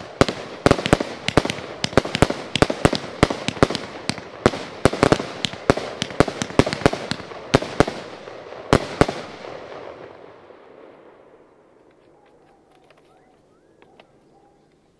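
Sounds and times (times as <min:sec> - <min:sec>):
firework bangs: 0:00.0 - 0:10.2.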